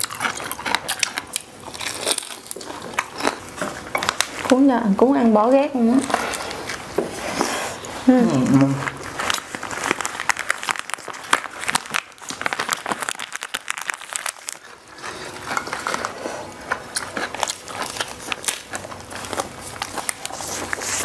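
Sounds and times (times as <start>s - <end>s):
crisp crackling bites: 0.0s - 4.4s, 8.9s - 21.0s
chewing: 0.0s - 4.7s, 5.8s - 21.0s
plastic gloves and paper crinkling: 1.3s - 21.0s.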